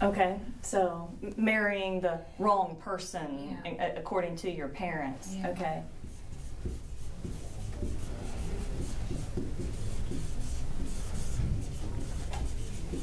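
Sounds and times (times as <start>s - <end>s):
marker scratching on whiteboard: 5.5s - 13.0s.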